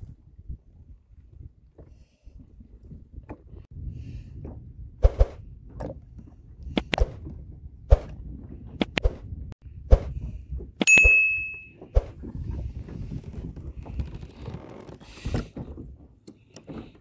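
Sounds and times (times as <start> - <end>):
electronic notification ding: 10.9 - 11.7.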